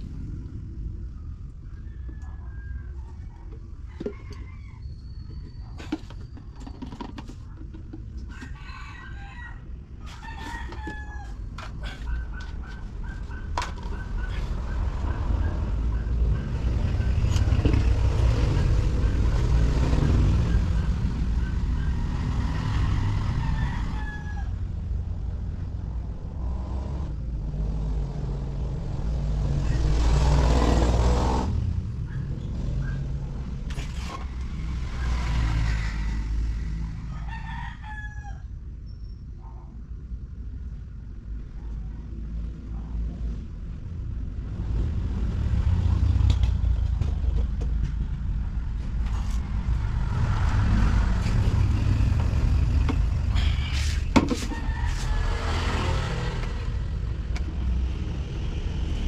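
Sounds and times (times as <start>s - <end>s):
steady low rumble: 0.0s - 3.9s
roosters crowing: 1.6s - 5.6s, 8.1s - 18.1s, 19.5s - 24.8s, 33.7s - 38.6s, 50.2s - 57.1s.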